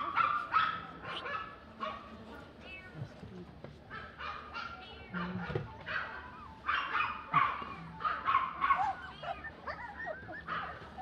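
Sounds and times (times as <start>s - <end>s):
puppies whining: 5.7s - 11.0s
puppies yipping: 5.8s - 11.0s.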